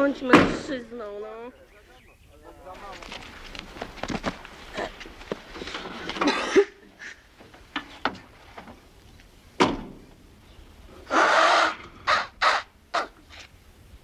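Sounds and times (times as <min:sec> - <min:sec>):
crow cawing: 0:11.1 - 0:13.1.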